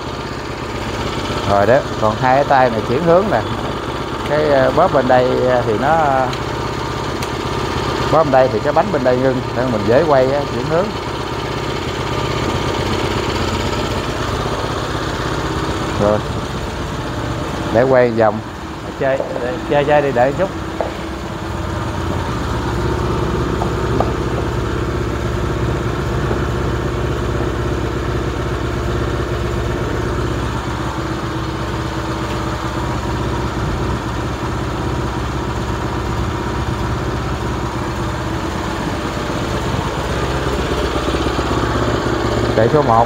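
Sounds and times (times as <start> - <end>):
small engine running steadily: 0.0 - 43.0.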